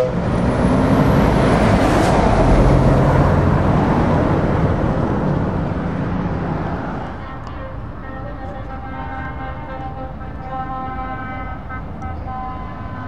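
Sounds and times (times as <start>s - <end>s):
truck driving past: 0.0s - 13.0s.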